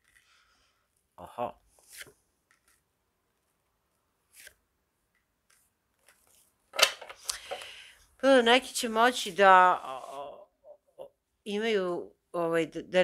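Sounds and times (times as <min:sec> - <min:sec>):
cards flicking and slapping: 0:05.4 - 0:07.8.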